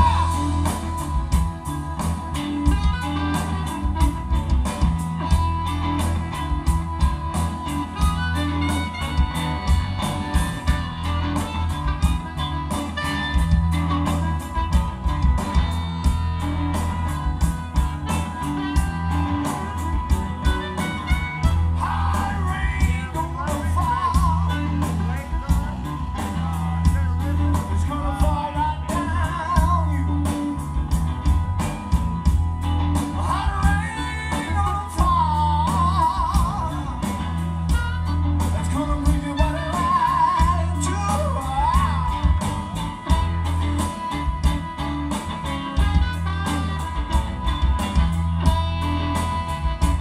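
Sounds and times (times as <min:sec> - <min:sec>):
person singing: 0:00.0 - 0:01.4, 0:21.6 - 0:30.7, 0:33.0 - 0:37.4, 0:38.4 - 0:43.2
live blues band playing: 0:00.0 - 0:50.0.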